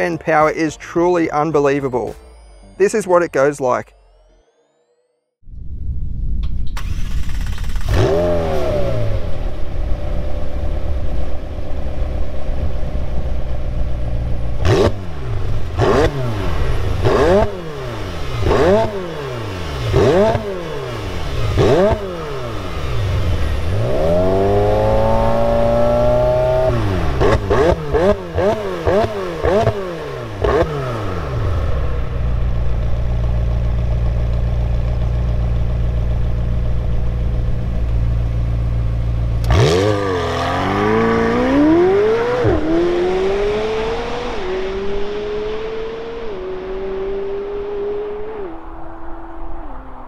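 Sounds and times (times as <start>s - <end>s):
car engine revving: 6.6s - 50.0s
car accelerating through upshifts: 6.8s - 9.5s, 14.4s - 32.1s, 39.4s - 50.0s.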